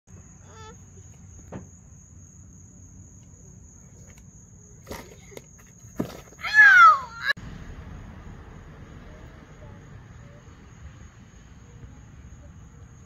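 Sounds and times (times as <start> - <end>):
insect trill: 0.1 - 13.0
child crying out: 0.4 - 0.8, 6.4 - 7.4.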